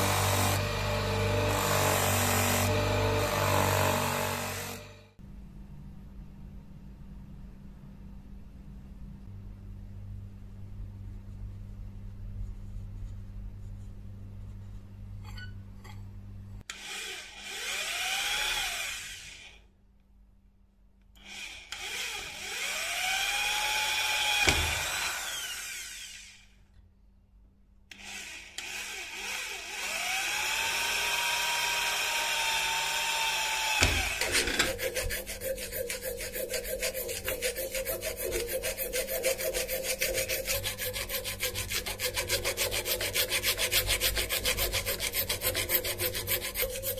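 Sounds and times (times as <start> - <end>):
hand file rasping: 33.8 - 46.9.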